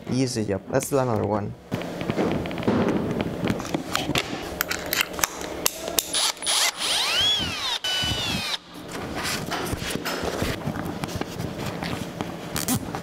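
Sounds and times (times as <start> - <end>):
power drill whining: 6.1 - 8.6.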